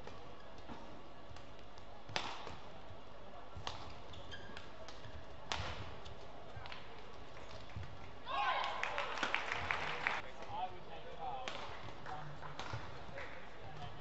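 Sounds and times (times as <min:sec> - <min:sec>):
rackets hitting shuttlecock: 0:00.0 - 0:02.8, 0:03.5 - 0:08.0, 0:11.4 - 0:13.2.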